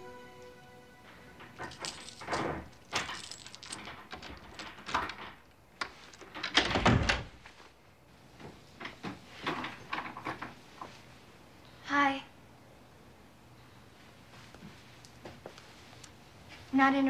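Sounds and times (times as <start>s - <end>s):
key unlocking door: 1.4s - 7.2s
door clicks and knocks: 1.5s - 7.4s.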